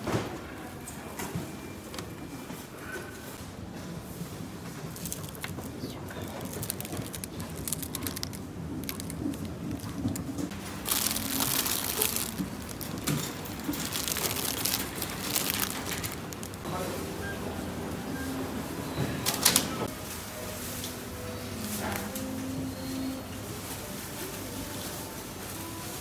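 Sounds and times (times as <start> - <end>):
plastic bag crinkling: 4.7 - 16.6.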